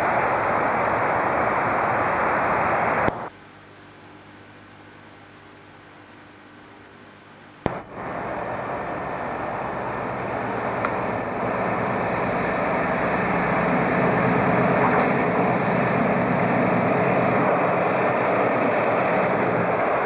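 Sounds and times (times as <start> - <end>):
diesel locomotive engine drone: 0.0 - 3.4, 7.6 - 20.0.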